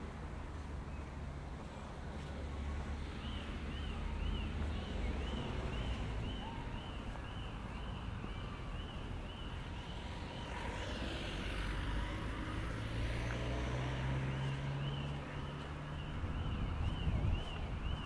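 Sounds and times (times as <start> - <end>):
car passing by: 9.5 - 18.0.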